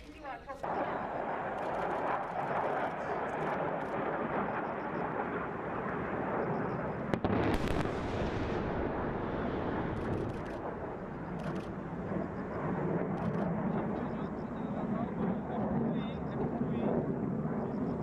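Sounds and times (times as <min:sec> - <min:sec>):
distant explosion crack: 0:00.6 - 0:18.0
steady background noise: 0:08.8 - 0:16.8.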